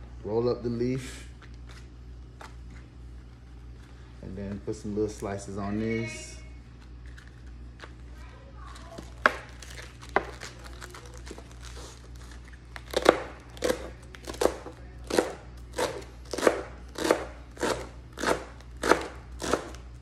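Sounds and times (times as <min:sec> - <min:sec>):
knife slicing cabbage on cutting board: 0:12.9 - 0:19.8.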